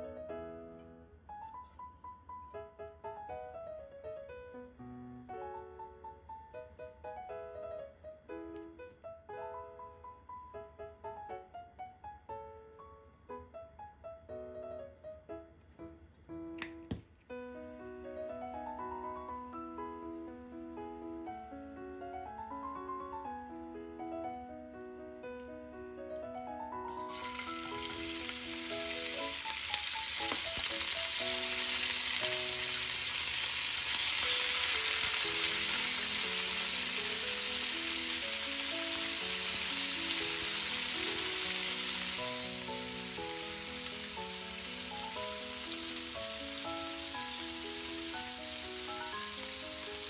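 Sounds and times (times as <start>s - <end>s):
meat sizzling in a frying pan: 26.9s - 50.0s.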